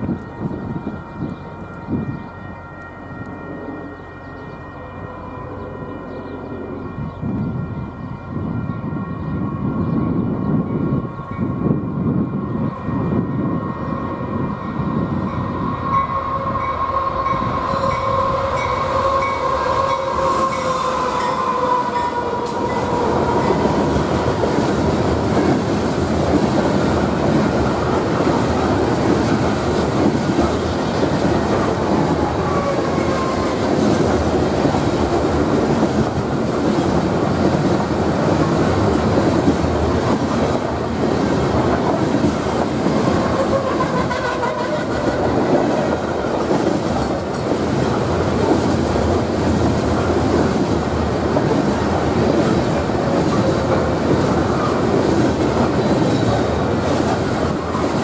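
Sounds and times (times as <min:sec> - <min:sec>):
freight cars rumbling on rails: 0:00.0 - 0:58.0
locomotives passing: 0:11.8 - 0:58.0.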